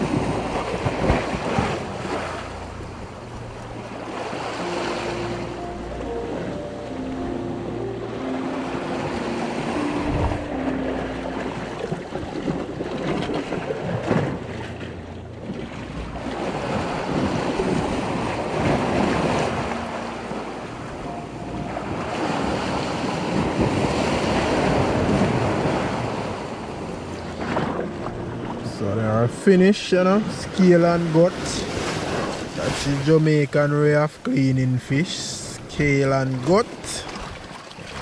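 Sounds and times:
surf breaking on rocks: 0.0 - 3.2, 15.6 - 20.8, 21.7 - 38.0.

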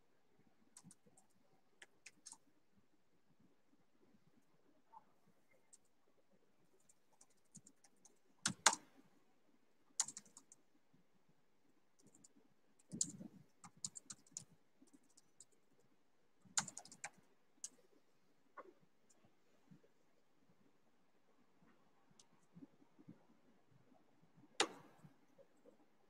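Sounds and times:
computer keyboard clicking: 7.2 - 8.8, 10.0 - 10.5, 12.0 - 14.5, 16.6 - 17.8.

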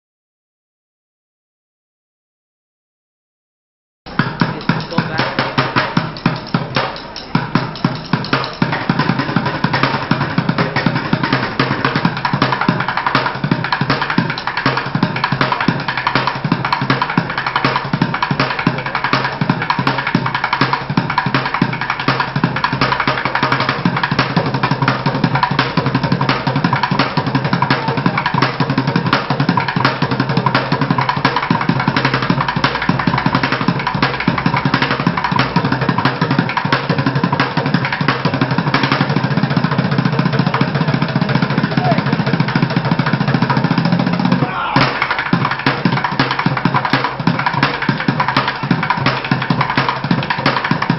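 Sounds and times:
drumming on plastic buckets: 4.2 - 39.9, 40.6 - 50.9.

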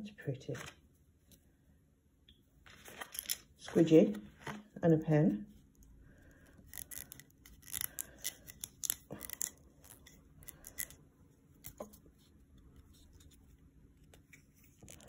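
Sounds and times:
plastic pen clicking and rustling: 6.6 - 11.0, 11.6 - 12.0.

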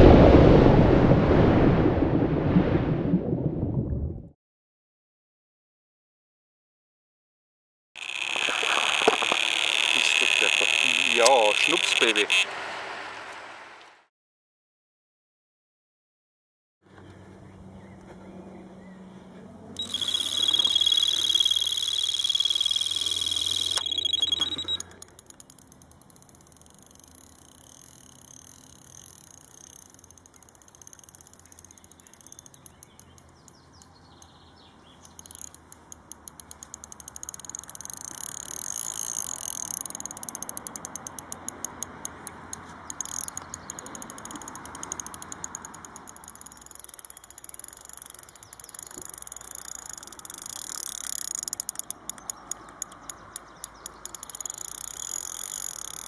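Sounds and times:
fishing reel clicking: 8.0 - 12.4, 19.8 - 56.0
bite alarm high tone: 19.8 - 24.9.

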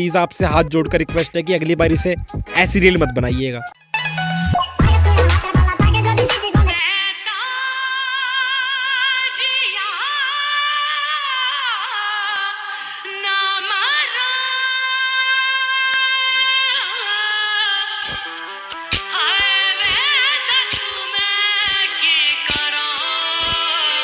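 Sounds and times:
heavy beat: 0.4 - 3.7, 4.5 - 6.8.

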